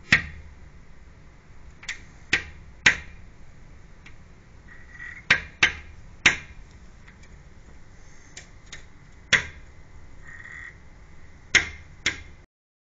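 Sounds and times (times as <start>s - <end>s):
crow knocking on window glass: 4.7s - 6.6s, 11.5s - 12.3s.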